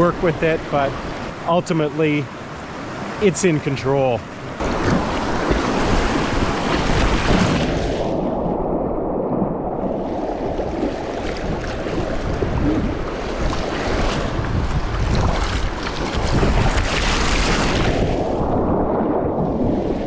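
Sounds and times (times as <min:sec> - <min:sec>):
wind buffeting microphone: 0:04.6 - 0:20.0.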